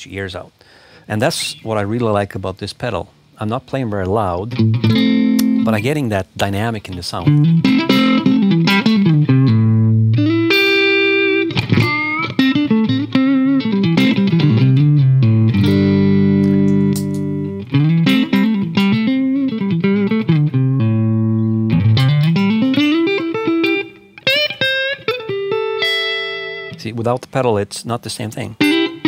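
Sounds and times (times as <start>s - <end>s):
electric guitar playing: 4.4s - 5.9s, 7.2s - 26.9s, 28.6s - 29.0s.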